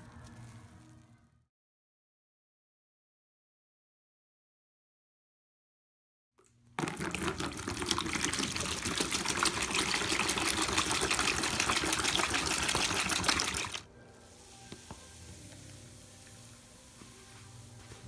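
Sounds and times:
water pouring into plastic bowl: 0:06.8 - 0:13.8.

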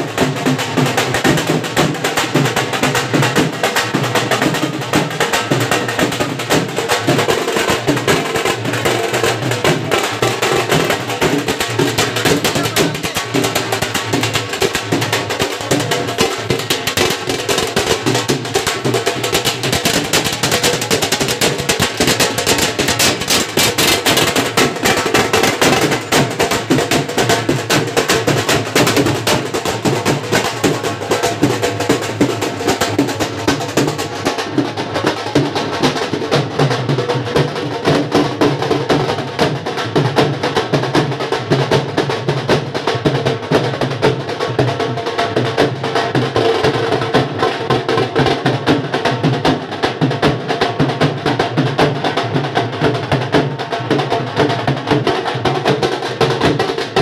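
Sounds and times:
group drumming: 0:00.0 - 0:57.0.

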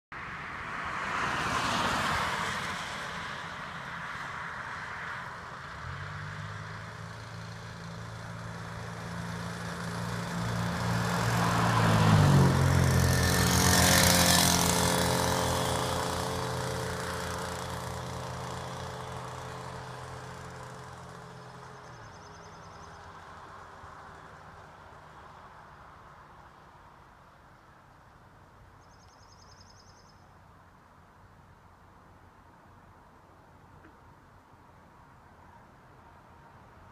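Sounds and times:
motorized bicycle engine passing: 0:08.9 - 0:21.3.

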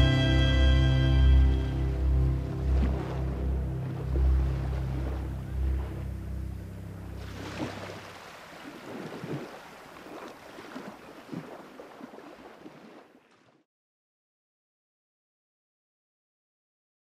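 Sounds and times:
small waves lapping on shore: 0:01.7 - 0:13.6.

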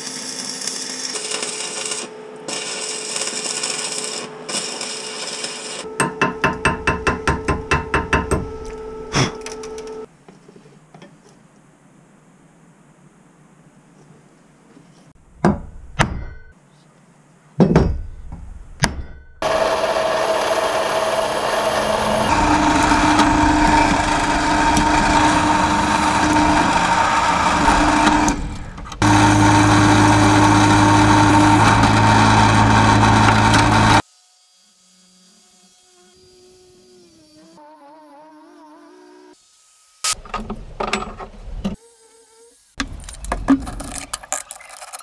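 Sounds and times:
angle grinder cutting steel: 0:19.4 - 0:34.0
drill press drilling steel: 0:19.4 - 0:34.0.

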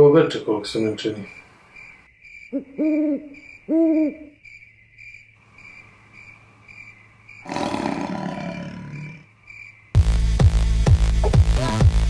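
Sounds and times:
cricket-like chirping: 0:00.0 - 0:10.0
owl-like hoots: 0:02.5 - 0:04.4.

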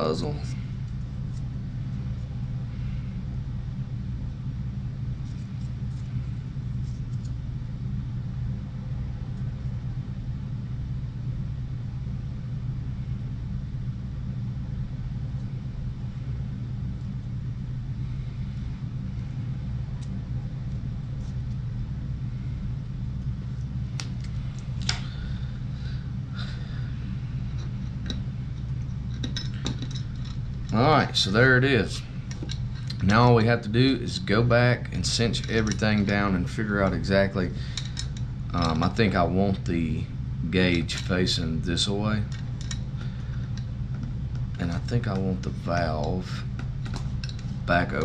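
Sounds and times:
steady low hum: 0:00.0 - 0:48.0
light clicks of fittings handled: 0:27.5 - 0:30.8, 0:35.4 - 0:36.1, 0:37.7 - 0:39.0, 0:42.3 - 0:45.2.

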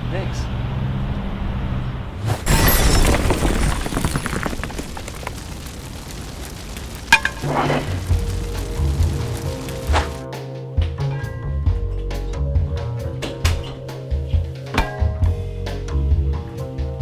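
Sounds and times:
explosion blast with crackling: 0:02.4 - 0:10.2
sharp crack: 0:02.5 - 0:10.2
music with low held notes: 0:08.2 - 0:17.0.

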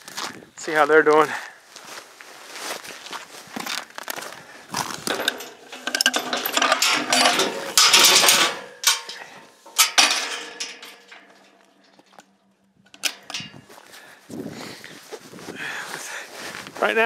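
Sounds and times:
metal gate clanking and rattling: 0:04.8 - 0:13.9
gate latch clicks: 0:12.9 - 0:13.7.

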